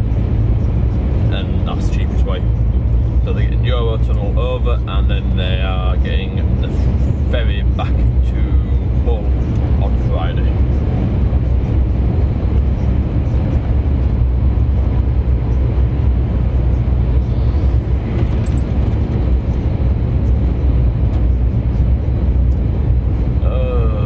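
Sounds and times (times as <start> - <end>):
lorry diesel engine drone: 0.0 - 24.0
road noise: 0.0 - 24.0.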